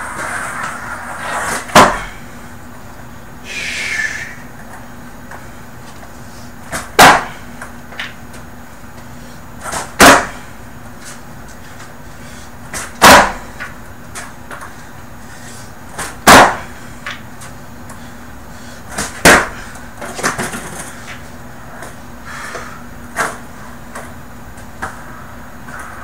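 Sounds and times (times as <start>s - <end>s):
skateboard smacking on carpet: 0.1s - 2.2s, 6.7s - 8.4s, 9.6s - 10.4s, 12.7s - 14.8s, 18.9s - 21.2s
skateboard clattering: 18.9s - 21.2s.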